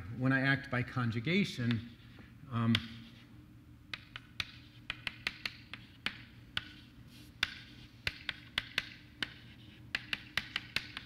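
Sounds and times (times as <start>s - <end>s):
steady low hum: 0.0s - 11.0s
chalk tapping on blackboard: 1.6s - 2.0s, 2.7s - 3.2s, 3.9s - 11.0s.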